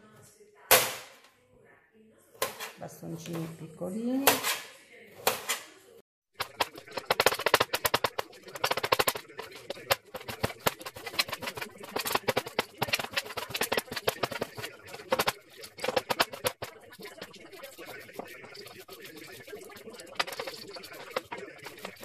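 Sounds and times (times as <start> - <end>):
knife chopping on steel worktop: 2.4 - 2.8, 4.2 - 5.6, 6.4 - 22.0.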